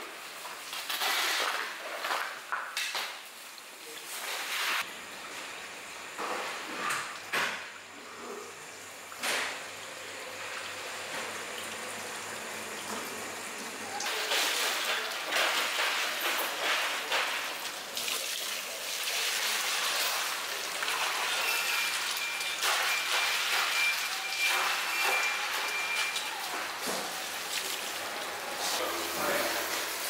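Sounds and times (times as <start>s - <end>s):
hose water splashing on concrete: 14.0s - 23.8s.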